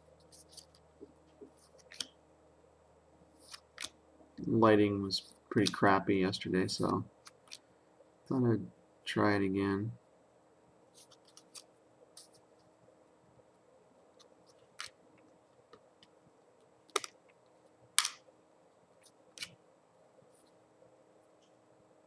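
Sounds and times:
trading cards snapping and rustling: 3.4 - 4.0, 11.0 - 11.7, 14.2 - 15.0, 16.9 - 17.2, 18.0 - 18.2.

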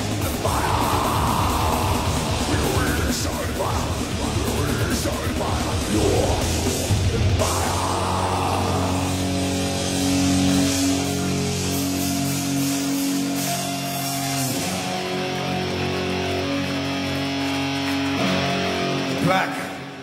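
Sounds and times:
vocal: 0.0 - 10.2
distorted electric guitars: 0.0 - 20.0
drums: 0.0 - 20.0.

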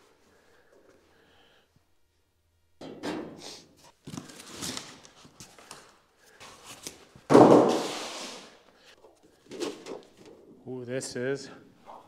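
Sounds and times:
sheet metal crash: 7.3 - 8.2.

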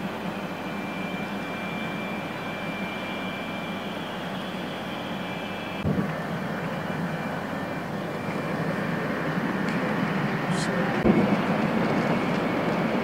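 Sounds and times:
thin high whine: 0.0 - 13.0
train running rumble and rush: 5.8 - 13.0.

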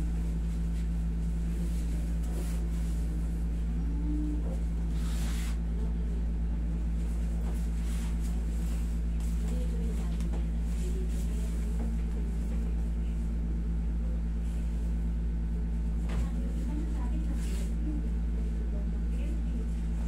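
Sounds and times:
air conditioner humming: 0.0 - 20.0.

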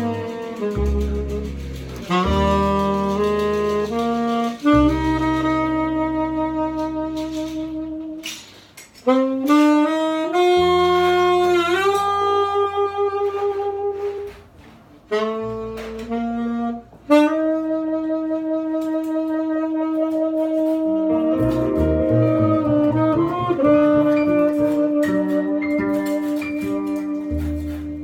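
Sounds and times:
plucked double bass: 0.0 - 8.2, 10.3 - 14.1, 20.5 - 28.0
saxophone slow melody: 0.0 - 8.4, 9.0 - 14.5, 15.1 - 28.0.

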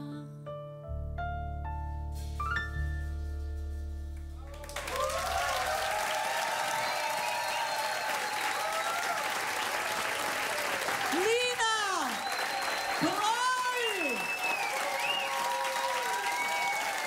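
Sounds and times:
keyboard chords over bass note: 0.0 - 2.2
audience applause: 4.4 - 17.0
people cheering: 4.4 - 17.0.

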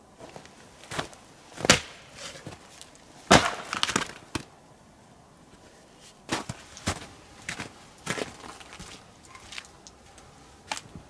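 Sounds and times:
axe chopping firewood: 1.6 - 2.0, 3.3 - 4.5
wood splitting crackle: 1.6 - 4.5.

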